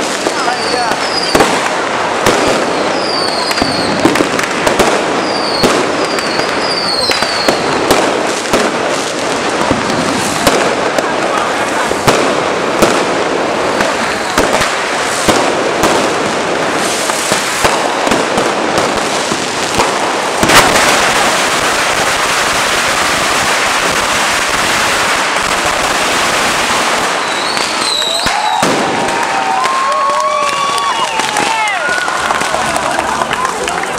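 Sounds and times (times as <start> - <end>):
firecracker bangs: 0.0 - 33.9
firecrackers crackling: 0.0 - 33.9
rising whistles: 27.2 - 28.8, 29.6 - 32.0.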